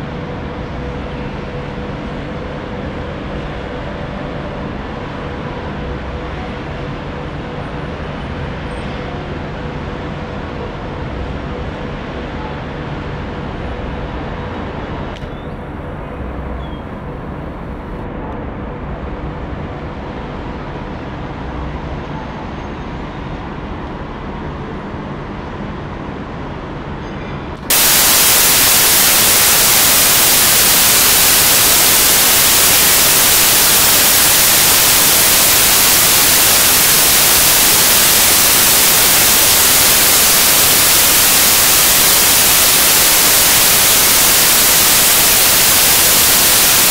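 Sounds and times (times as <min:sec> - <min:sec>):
static hiss: 0:27.7 - 0:46.9.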